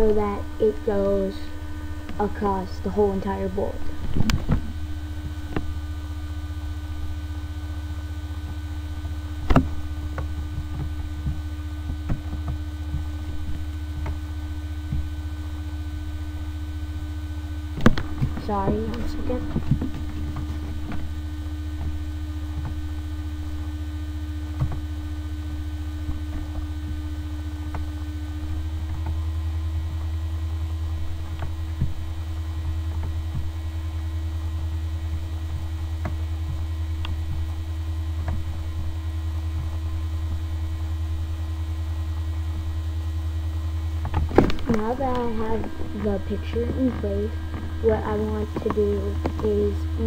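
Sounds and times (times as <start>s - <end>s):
steady high tone: 0.0s - 8.9s, 14.3s - 21.7s, 44.6s - 50.0s
electrical mains hum: 0.0s - 50.0s.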